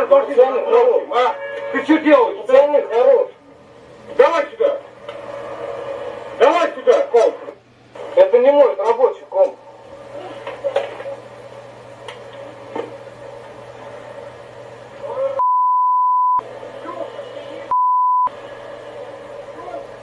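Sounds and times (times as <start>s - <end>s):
low electrical hum: 0.0s - 20.0s
censor bleeps: 15.4s - 16.4s, 17.7s - 18.3s.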